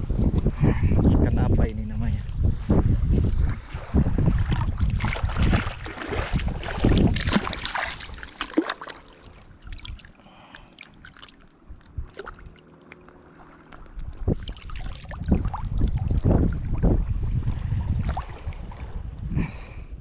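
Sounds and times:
water splashing and sloshing: 0:02.4 - 0:19.7
water trickling: 0:05.8 - 0:17.0.

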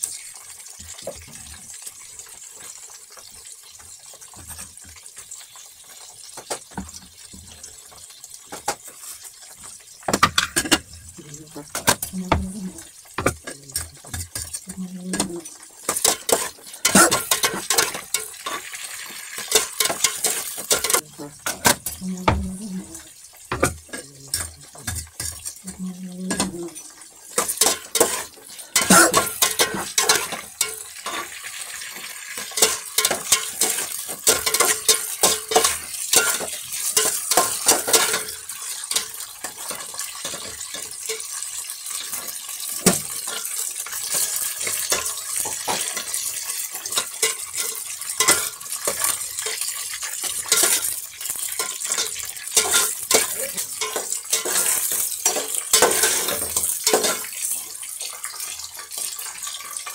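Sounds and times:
meat sizzling: 0:00.0 - 0:59.9
utensil scraping a pan: 0:10.1 - 0:31.4.

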